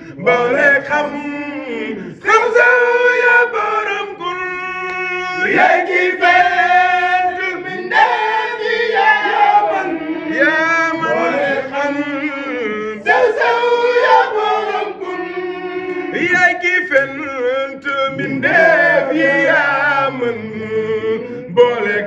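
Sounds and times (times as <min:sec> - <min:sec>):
group of voices chanting: 0:05.4 - 0:17.1, 0:18.1 - 0:21.2.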